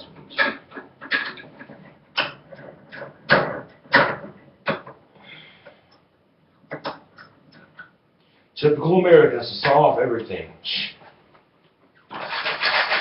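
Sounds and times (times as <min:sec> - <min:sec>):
scrapes and knocks: 0:00.0 - 0:05.0.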